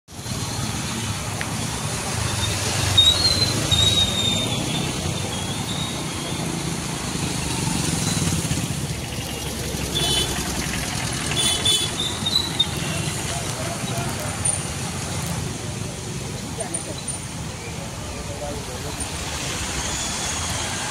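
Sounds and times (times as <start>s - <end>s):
motorcycle and car engines: 0.1s - 20.9s
water hissing under tyres: 18.7s - 20.9s.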